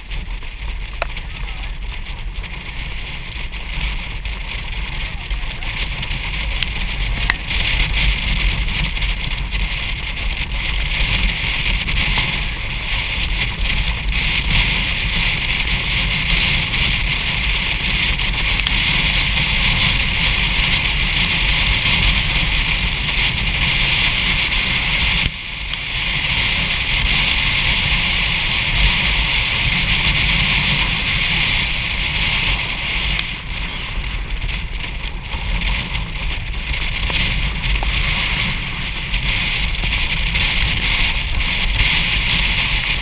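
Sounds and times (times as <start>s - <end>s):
low rumble: 0.0s - 43.0s
wind rushing over microphone: 0.0s - 43.0s.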